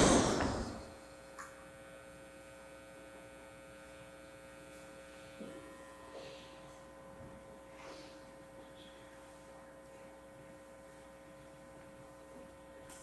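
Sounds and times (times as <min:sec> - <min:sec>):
loud noise: 0:00.0 - 0:00.9
electrical mains hum: 0:00.0 - 0:13.0.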